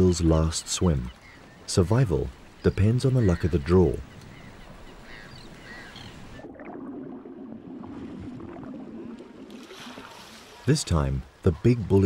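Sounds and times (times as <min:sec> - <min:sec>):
low rushing water: 0:00.0 - 0:12.0
faint gull calls: 0:03.1 - 0:06.4
water wash: 0:06.4 - 0:12.0.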